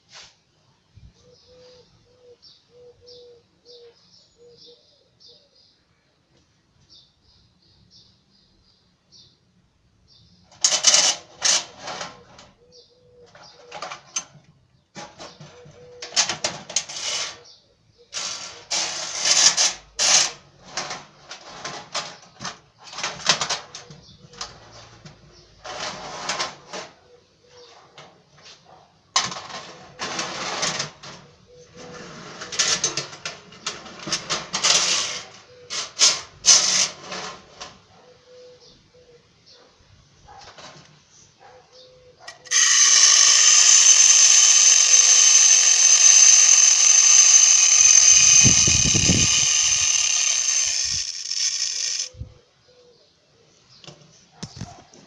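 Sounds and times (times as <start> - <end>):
tin toy bus clattering on track: 10.5 - 12.5, 15.0 - 17.4, 18.1 - 27.0, 29.2 - 37.8, 42.5 - 52.1.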